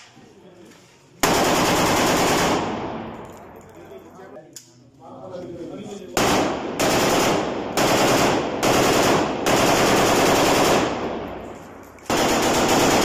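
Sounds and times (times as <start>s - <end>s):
automatic rifle bursts: 12.0s - 13.0s.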